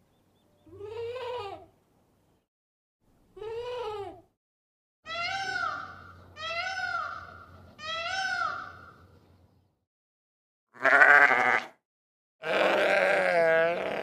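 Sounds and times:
peacock calling: 0:05.1 - 0:09.0
goat bleating: 0:10.8 - 0:11.8, 0:12.4 - 0:14.0.

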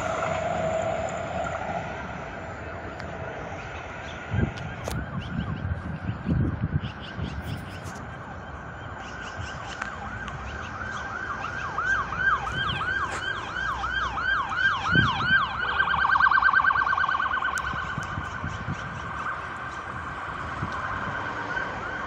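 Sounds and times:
emergency siren wailing: 0:00.0 - 0:06.7, 0:07.8 - 0:22.0.

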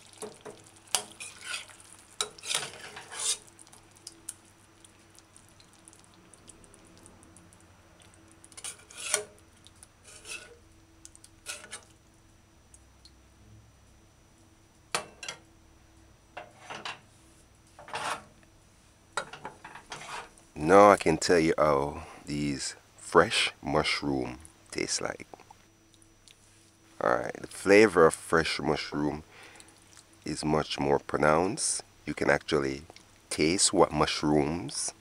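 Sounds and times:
metal spoon scraping a saucepan: 0:01.0 - 0:03.4, 0:08.6 - 0:09.4, 0:10.0 - 0:10.6, 0:11.4 - 0:11.9, 0:17.8 - 0:18.3, 0:19.3 - 0:20.3.

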